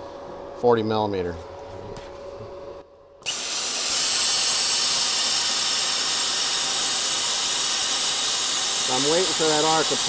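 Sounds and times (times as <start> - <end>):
plasma torch hissing: 3.3 - 10.0.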